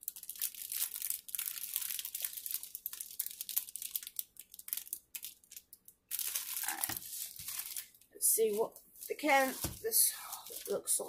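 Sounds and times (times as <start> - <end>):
plastic wrapping crinkling: 0.0 - 11.0.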